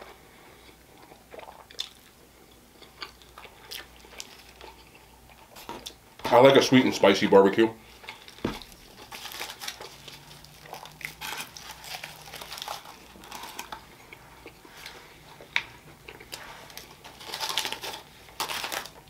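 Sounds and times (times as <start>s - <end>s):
aluminium foil crinkling: 4.0s - 4.8s, 8.1s - 13.8s, 16.2s - 19.0s.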